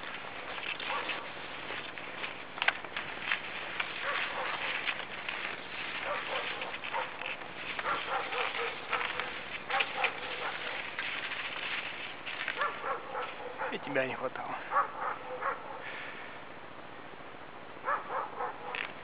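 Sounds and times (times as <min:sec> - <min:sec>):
dogs barking and yelping: 0:00.2 - 0:02.3, 0:03.8 - 0:11.2, 0:12.5 - 0:13.8, 0:14.7 - 0:15.9, 0:17.8 - 0:18.8.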